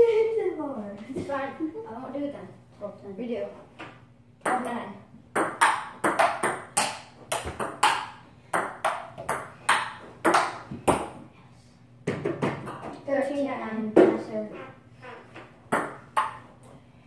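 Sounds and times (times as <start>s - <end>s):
ping pong ball clicking: 5.4s - 11.0s, 15.7s - 16.4s.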